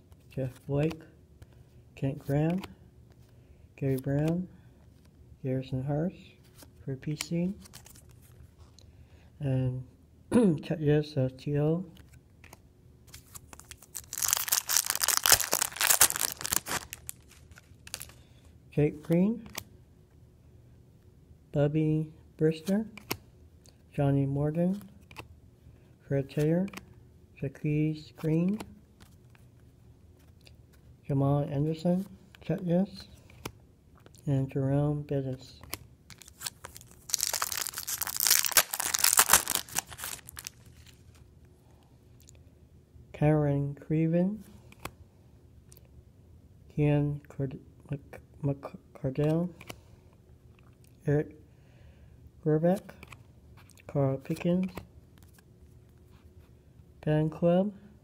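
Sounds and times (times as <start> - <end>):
faint clicks of cards handled: 0.0 - 5.2, 6.4 - 8.9, 11.9 - 13.9, 19.0 - 19.7, 22.6 - 23.9, 24.7 - 25.3, 26.3 - 27.0, 28.2 - 30.9, 32.3 - 34.2, 35.6 - 42.4, 44.4 - 45.0, 49.1 - 51.0, 52.8 - 56.6
foil wrapper crinkling: 13.4 - 18.2, 36.1 - 41.2.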